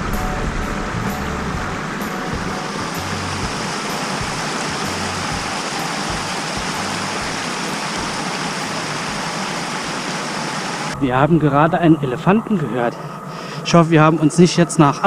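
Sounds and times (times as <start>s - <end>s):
stream rushing over rocks: 0.7s - 11.0s.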